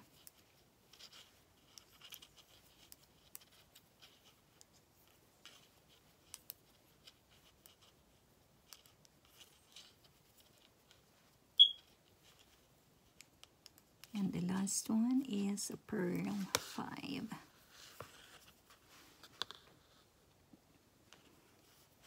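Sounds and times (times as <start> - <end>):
knitting needles clicking: 5.4 - 7.9, 13.0 - 14.2.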